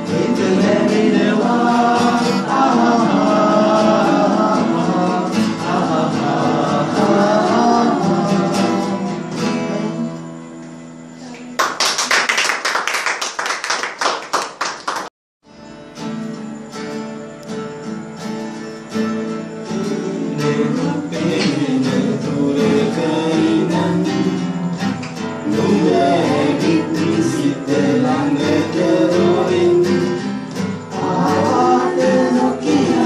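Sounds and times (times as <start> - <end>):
person singing: 0.0 - 10.5, 19.7 - 33.0
acoustic guitar strumming: 0.0 - 11.1, 15.4 - 33.0.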